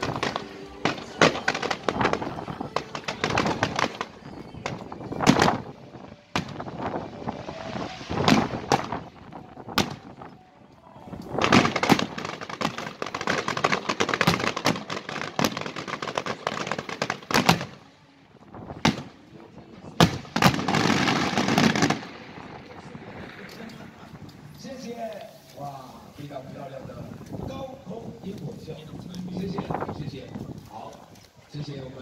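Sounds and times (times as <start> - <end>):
fireworks bangs: 0.0 - 10.4, 11.1 - 17.9, 18.5 - 25.0
rapid firework reports: 0.0 - 10.4, 11.2 - 17.9, 18.5 - 30.6.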